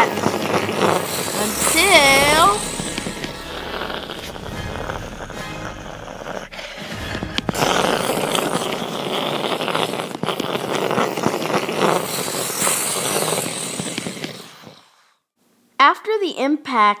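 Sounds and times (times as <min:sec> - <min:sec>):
crackling hissing blast: 0:00.0 - 0:14.8
sharp explosion crack: 0:01.2 - 0:09.3.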